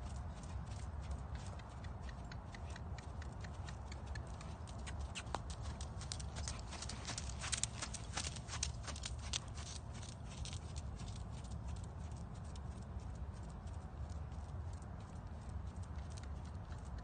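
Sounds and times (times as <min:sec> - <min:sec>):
hoofbeats on soft dirt: 0:00.0 - 0:17.0.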